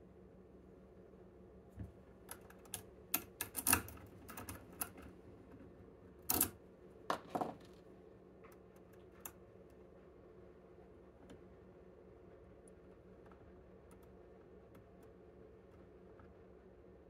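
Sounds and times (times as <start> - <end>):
lock-picking tools clicking: 2.3 - 5.0.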